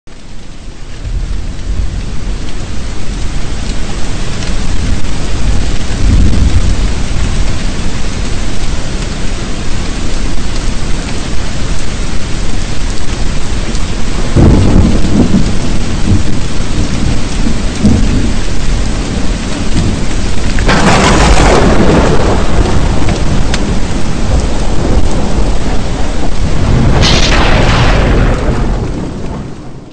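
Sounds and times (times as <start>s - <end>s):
heavy rain: 0.1s - 29.9s
sharp thunder clap: 4.9s - 7.4s, 13.8s - 18.5s, 19.1s - 29.9s
rolls of thunder: 5.5s - 7.4s, 14.0s - 18.5s, 19.8s - 29.9s.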